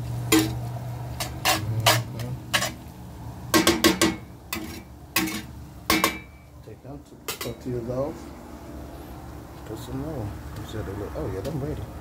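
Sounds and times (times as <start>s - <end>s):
metal cookware clanking on skillet: 0.3s - 2.8s, 3.6s - 6.4s, 7.3s - 7.7s.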